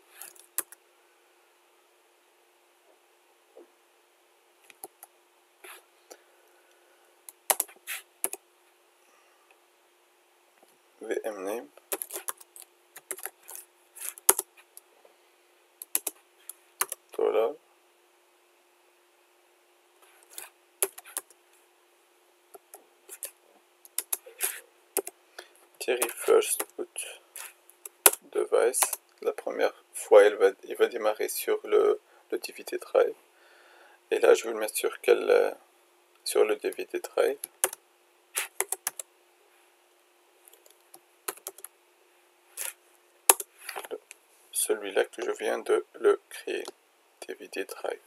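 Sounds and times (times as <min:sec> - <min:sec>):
computer keyboard keystrokes: 0:00.3 - 0:00.8, 0:07.4 - 0:08.4, 0:11.9 - 0:13.6, 0:14.2 - 0:14.5, 0:15.8 - 0:16.2, 0:16.8 - 0:17.0, 0:23.9 - 0:24.2, 0:38.6 - 0:39.0, 0:40.6 - 0:41.7.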